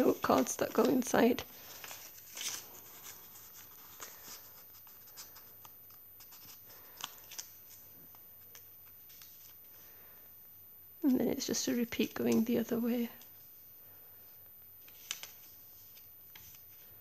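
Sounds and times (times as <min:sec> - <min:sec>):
paper pages rustling: 0:00.0 - 0:09.8, 0:14.8 - 0:17.0.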